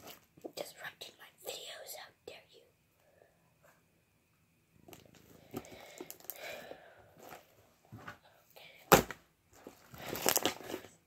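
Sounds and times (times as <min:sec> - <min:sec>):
slime squished and stretched: 0:09.9 - 0:10.9.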